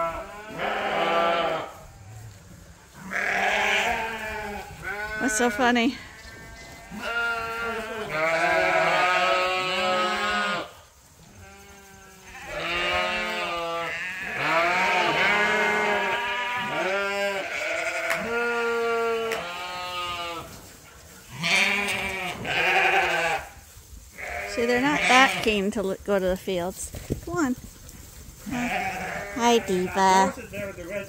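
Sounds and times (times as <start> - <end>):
sheep bleating: 0.0 - 1.8, 3.0 - 10.7, 11.4 - 20.5, 21.3 - 23.5, 24.2 - 25.6, 28.4 - 31.0.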